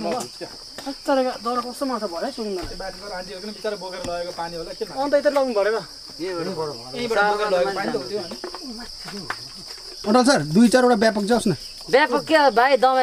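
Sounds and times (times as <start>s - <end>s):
men talking: 0.0s - 0.6s, 1.5s - 12.2s
high-pitched insect chorus: 0.0s - 13.0s.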